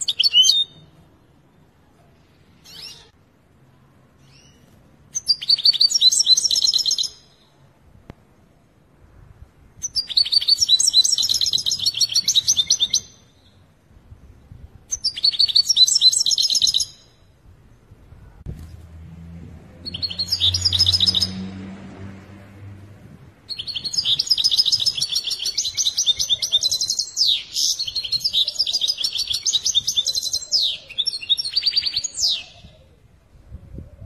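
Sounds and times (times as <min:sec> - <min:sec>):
low hum: 0:17.3 - 0:23.4
goldfinch twittering song: 0:19.8 - 0:21.5.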